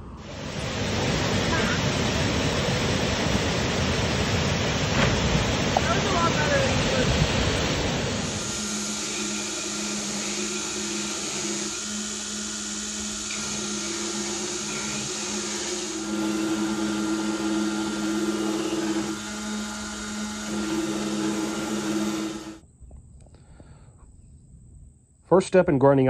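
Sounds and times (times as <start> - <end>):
motor hum: 0.0 - 22.6
blade grinding hiss: 6.4 - 22.6.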